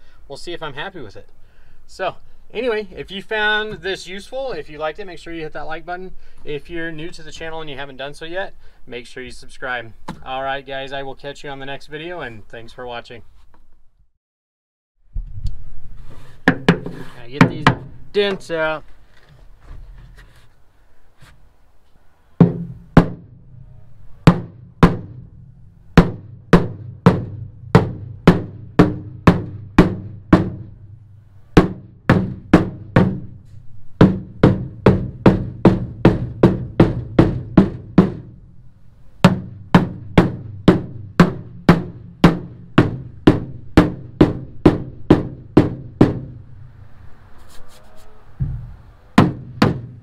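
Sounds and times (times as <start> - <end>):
sharp drum hits: 22.4 - 23.4, 24.3 - 31.0, 31.6 - 33.4, 34.0 - 38.4, 39.2 - 46.4, 48.4 - 50.0.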